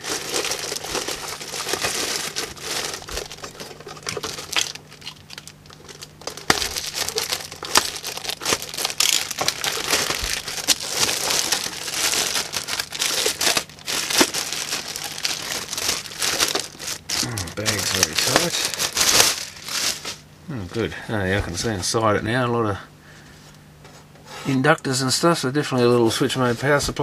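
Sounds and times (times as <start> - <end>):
plastic bag crinkling: 0.0 - 20.3.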